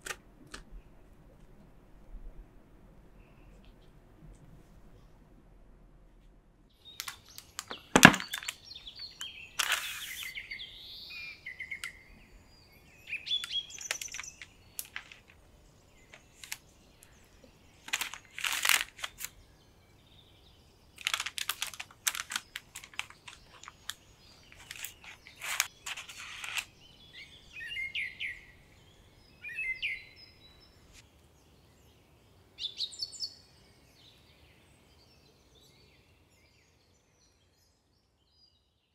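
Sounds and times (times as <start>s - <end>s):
sharp clicks and crackles: 7.0s - 8.6s, 13.4s - 15.4s, 17.9s - 19.3s, 21.0s - 26.7s.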